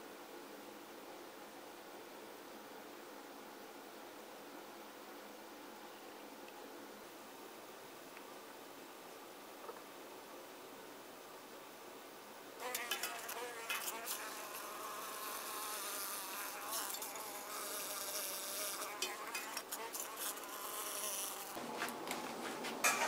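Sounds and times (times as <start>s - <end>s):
flying insect buzzing: 12.6s - 21.6s.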